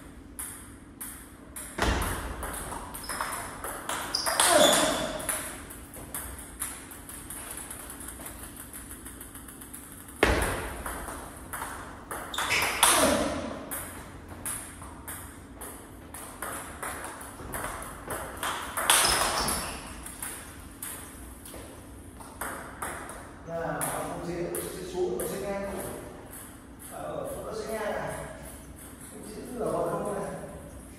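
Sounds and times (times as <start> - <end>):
table tennis ball clicks: 2.4 - 13.0.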